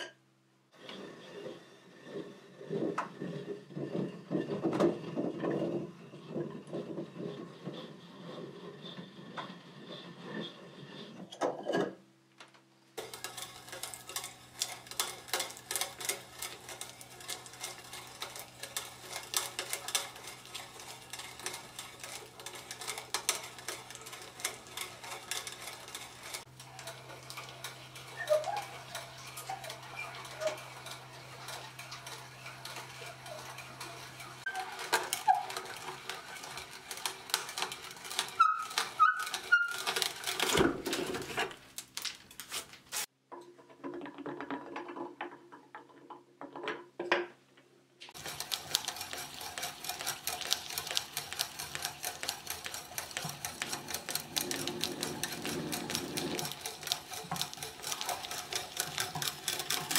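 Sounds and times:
hand brace boring into wood: 13.0 - 41.5, 48.2 - 59.9.

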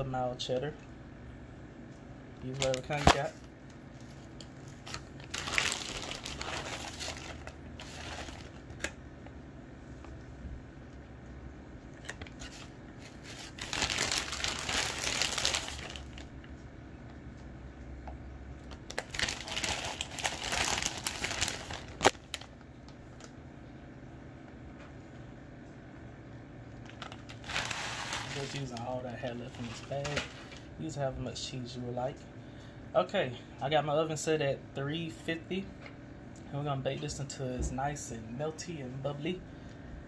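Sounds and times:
plastic bag crinkling: 2.5 - 8.9, 12.0 - 16.3, 18.7 - 22.6, 26.8 - 30.7.

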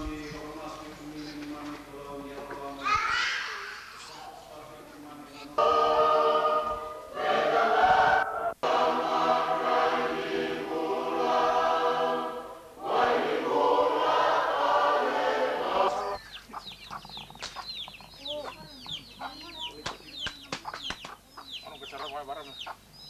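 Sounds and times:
congregation singing a hymn: 0.0 - 2.9, 4.4 - 16.2
chickens clucking and chirping: 13.6 - 23.0.

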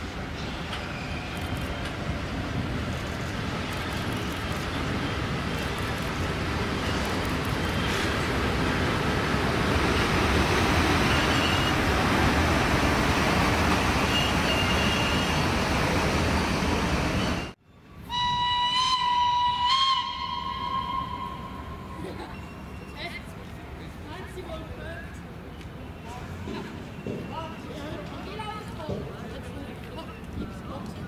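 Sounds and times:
electric locomotive passing: 0.0 - 31.0
long horn blast: 18.1 - 22.0.

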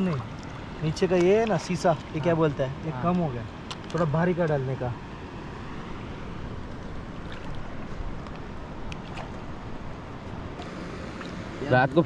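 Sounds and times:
wind and water rushing: 0.0 - 12.0.

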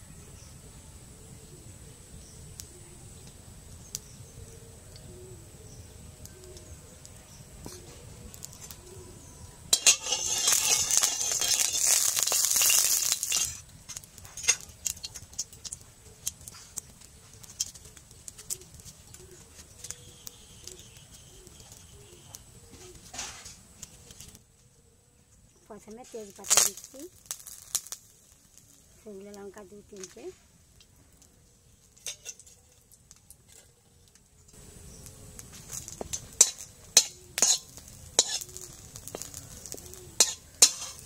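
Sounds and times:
metal spatula scraping pan: 9.7 - 13.6, 36.1 - 41.0.

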